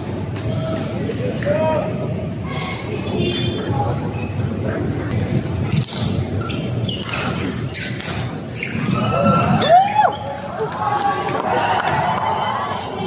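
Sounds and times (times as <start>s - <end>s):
crowd murmur in a large hall: 0.0s - 13.0s.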